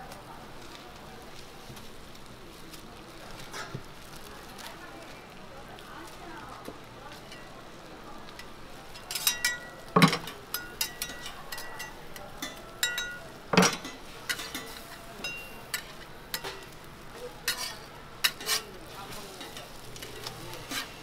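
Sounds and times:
food frying: 0.0s - 21.0s
metal spatula scraping griddle: 8.4s - 21.0s.

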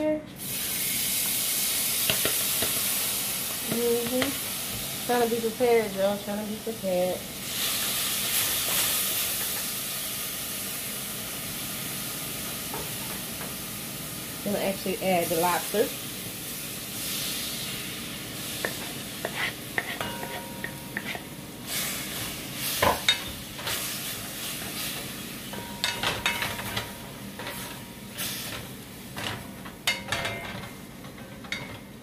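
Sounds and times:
meat sizzling in oil: 0.4s - 30.1s
spoon scraping metal pot: 18.6s - 21.3s.

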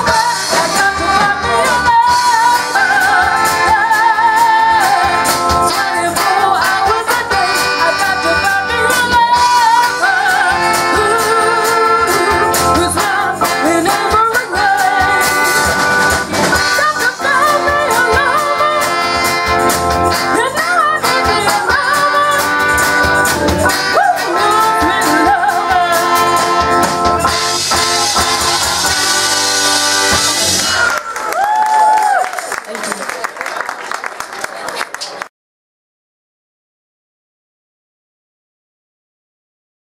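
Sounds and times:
woman singing: 0.0s - 15.6s, 16.6s - 19.2s, 20.2s - 22.8s, 23.7s - 26.9s
live band music: 0.0s - 33.3s
baritone saxophone: 0.1s - 31.0s.

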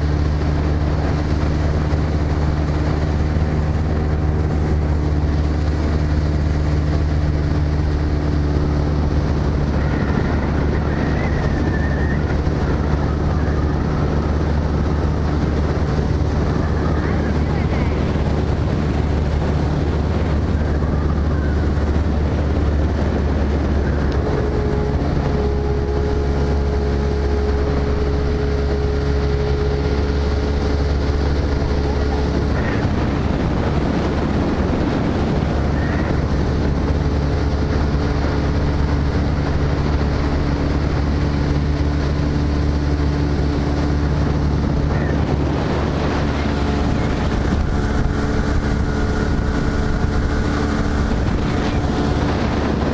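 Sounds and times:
motorboat engine running: 0.0s - 52.9s
water rushing past hull: 0.0s - 52.9s.

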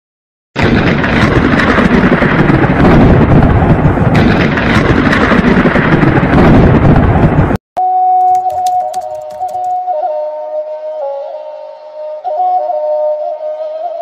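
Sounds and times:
thunder rumbling: 0.6s - 7.6s.

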